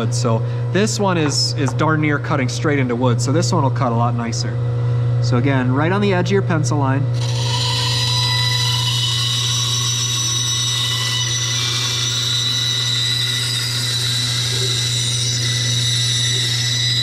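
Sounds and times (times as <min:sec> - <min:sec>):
band saw cutting wood: 0:07.2 - 0:17.0.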